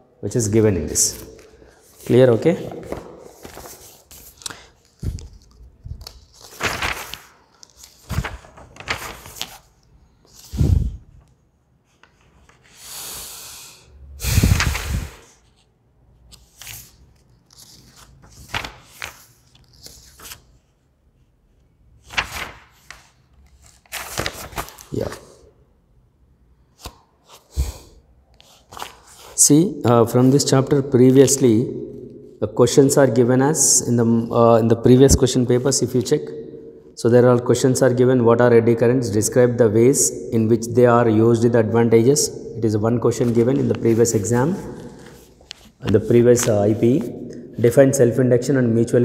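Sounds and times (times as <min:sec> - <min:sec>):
book pages rustling: 0:01.8 - 0:12.7, 0:14.6 - 0:20.8, 0:22.1 - 0:25.3, 0:28.3 - 0:29.4, 0:43.2 - 0:47.3.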